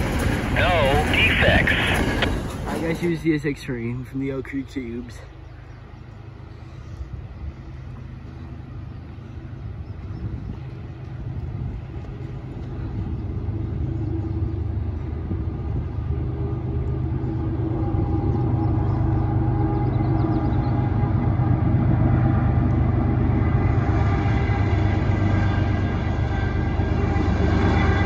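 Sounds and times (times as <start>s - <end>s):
diesel locomotives rumbling: 0.0s - 28.0s.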